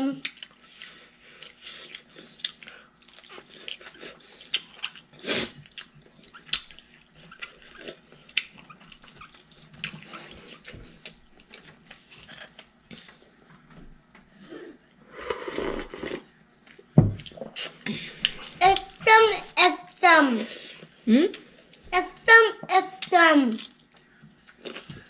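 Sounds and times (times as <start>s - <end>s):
wet chewing and lip-smacking: 0.2s - 13.2s.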